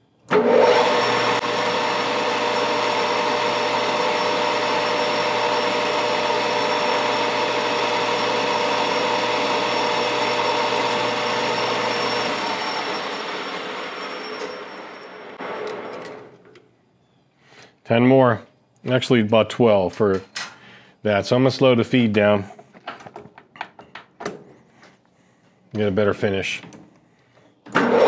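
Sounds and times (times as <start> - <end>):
lathe cutting metal: 0.3 - 16.0
metal lathe motor and gear whine: 0.3 - 16.3.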